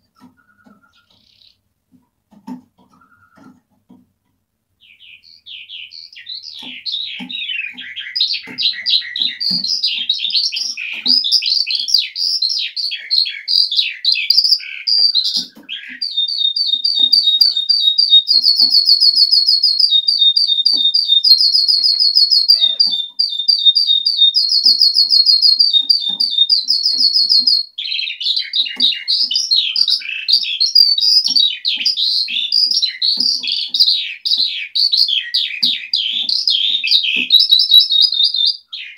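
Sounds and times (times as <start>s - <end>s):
skylark singing: 0.0s - 1.6s, 4.8s - 38.9s.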